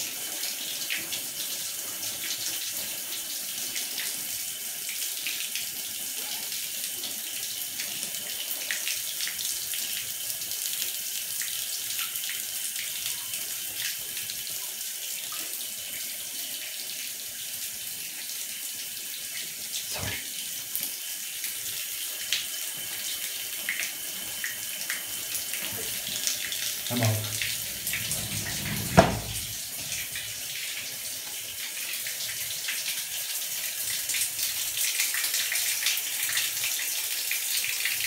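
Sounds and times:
shower water spraying: 23.7s - 30.7s
dull knock: 27.0s - 29.6s.

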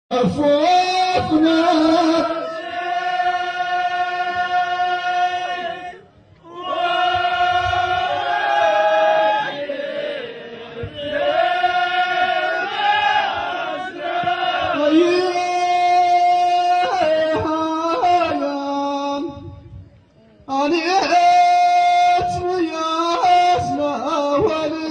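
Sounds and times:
men's chorus chanting: 0.2s - 18.4s.

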